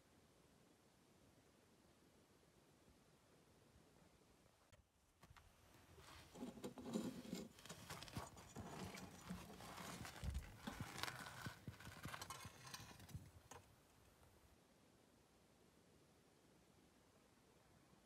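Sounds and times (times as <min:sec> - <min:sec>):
metal blade scraping on rock: 0:06.2 - 0:13.6.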